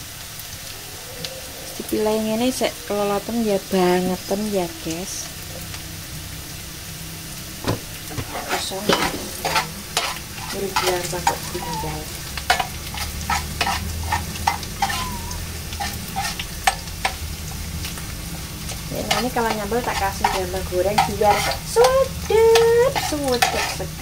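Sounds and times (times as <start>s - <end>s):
fish sizzling in oil: 0.0s - 24.0s
spatula scraping a pan: 8.1s - 17.2s, 18.7s - 24.0s.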